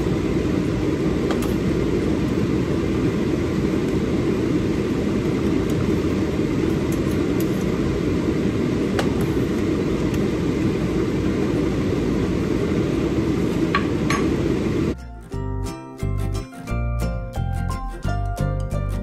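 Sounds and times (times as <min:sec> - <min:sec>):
low rumbling noise: 0:00.0 - 0:15.0
music: 0:15.0 - 0:19.0.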